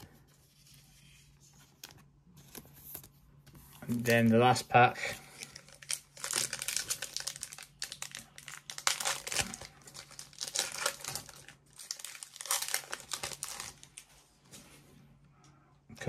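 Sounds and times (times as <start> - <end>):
foil wrapper crinkling and tearing: 5.2 - 14.1.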